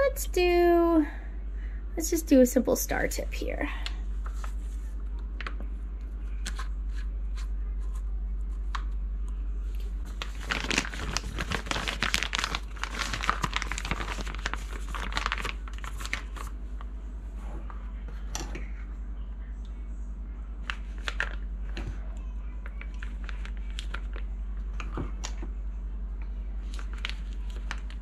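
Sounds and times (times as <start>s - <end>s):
piping bag crinkling: 10.0s - 16.9s, 20.6s - 25.4s, 26.5s - 28.0s.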